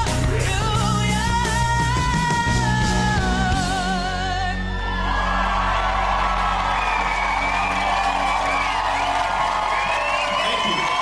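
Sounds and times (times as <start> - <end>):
audience cheering and applauding: 4.4 - 11.0.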